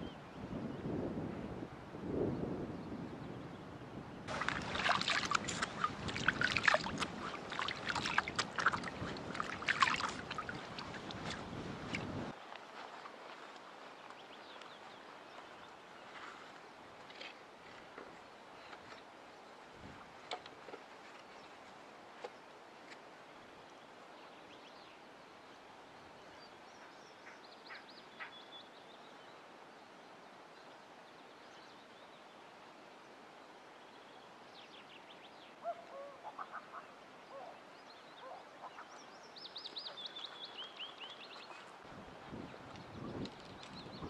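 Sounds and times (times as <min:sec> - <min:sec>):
birds calling: 0:04.3 - 0:12.2, 0:35.6 - 0:41.7
faint steady hiss: 0:04.3 - 0:43.9.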